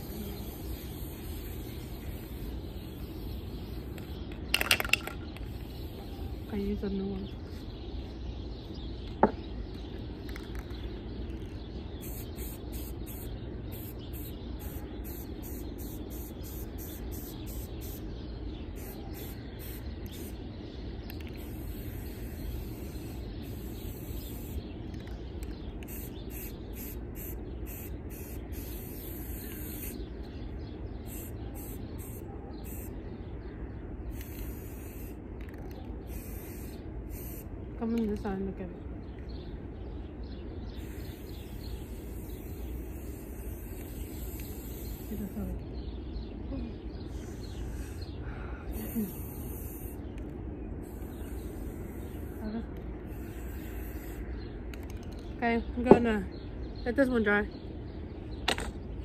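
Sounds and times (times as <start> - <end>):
aerosol spray can hissing: 0.0 - 4.2, 12.0 - 18.0, 21.1 - 25.0, 25.8 - 30.1, 34.1 - 37.4, 40.8 - 45.5, 48.7 - 50.1, 53.1 - 54.2.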